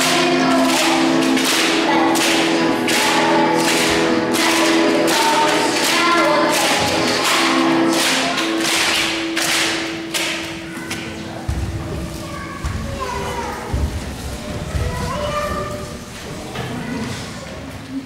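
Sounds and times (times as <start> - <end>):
music with bright percussion: 0.0 - 10.8.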